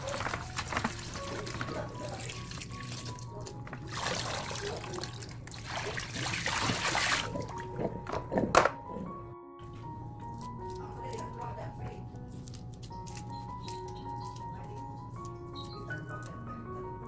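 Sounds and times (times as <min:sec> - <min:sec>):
light background music: 0:00.0 - 0:17.0
tap water splashing: 0:00.1 - 0:08.2.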